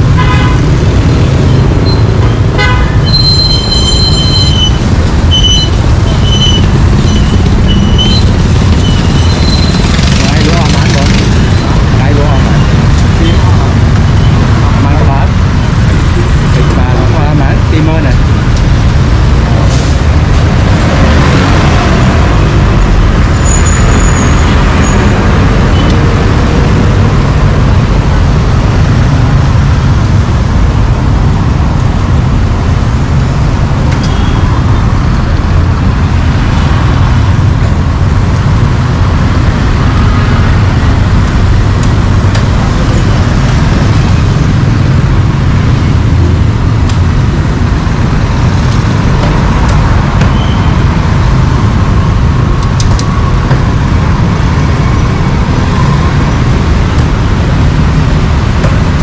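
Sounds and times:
street traffic rumble: 0.0s - 59.0s.

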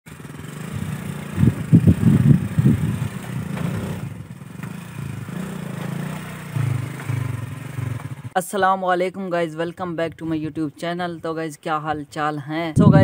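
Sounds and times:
motorcycle engine labouring: 0.1s - 8.4s.

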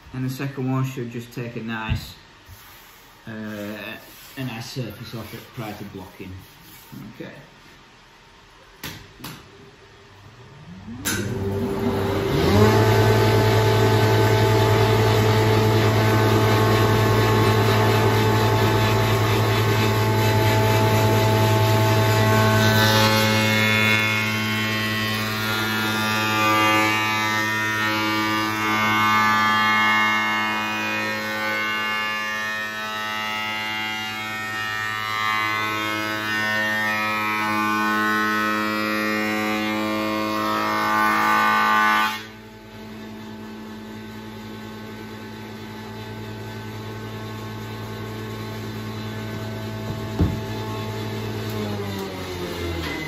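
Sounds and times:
planer cutting wood: 11.0s - 53.0s
sharp knock: 49.9s - 50.5s.

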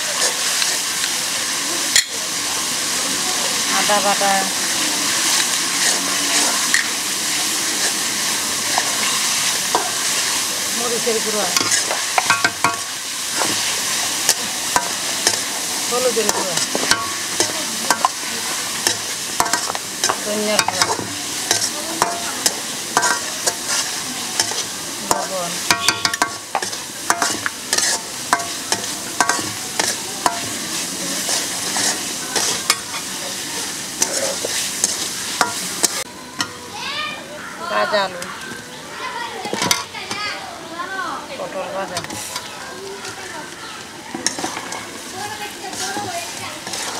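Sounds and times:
paste sizzling in hot oil: 0.0s - 46.9s
metal spatula scraping pan: 5.2s - 36.1s, 44.1s - 46.9s.

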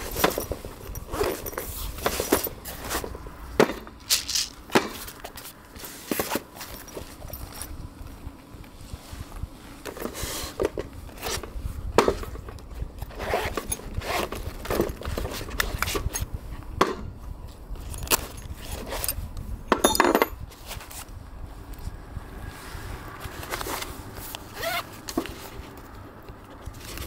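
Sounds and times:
ringing metallic clatter: 19.7s - 20.4s.

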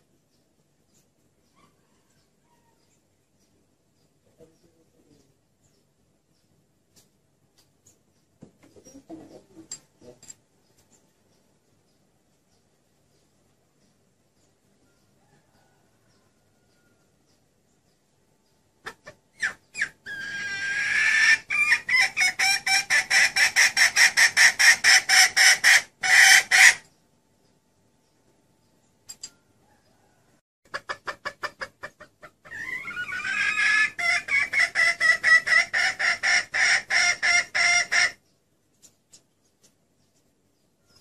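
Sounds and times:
hen clucking: 7.9s - 10.2s, 18.8s - 27.0s, 29.7s - 38.3s.

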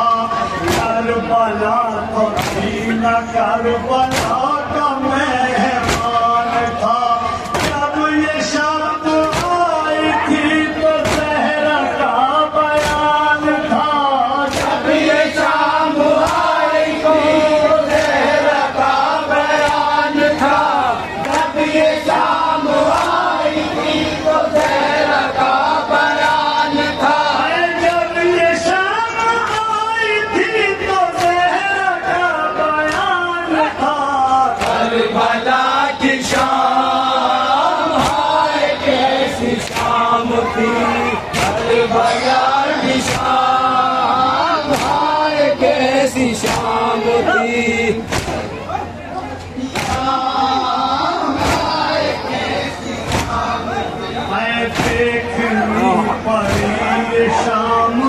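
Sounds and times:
men chanting through loudspeaker: 0.0s - 58.0s
hand slaps on chest: 48.1s - 48.4s.

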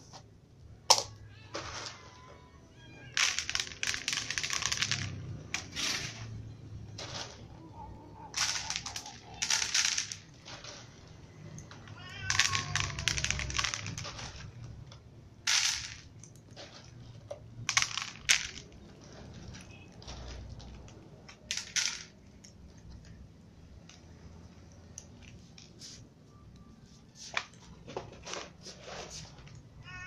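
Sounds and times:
cats crunching dry kibble: 8.2s - 14.9s, 16.1s - 17.3s, 18.6s - 21.5s.

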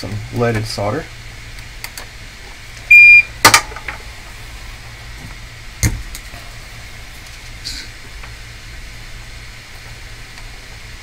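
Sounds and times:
steady low hum: 0.0s - 11.0s
short electronic beep: 2.9s - 3.3s.

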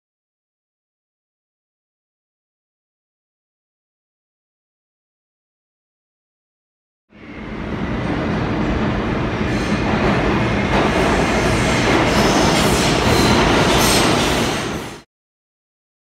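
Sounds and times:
subway train rail rumble: 7.1s - 15.1s.

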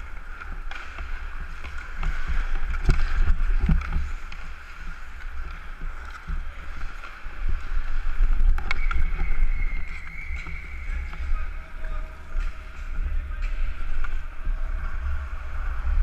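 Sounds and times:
skates on ice: 0.0s - 16.0s
wind rumble on microphone: 7.6s - 16.0s.

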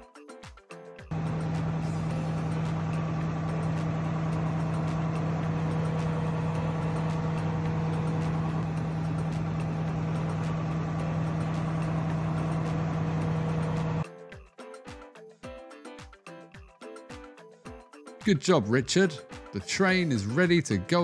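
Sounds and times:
toy train engine hum with ticking: 1.1s - 14.0s.

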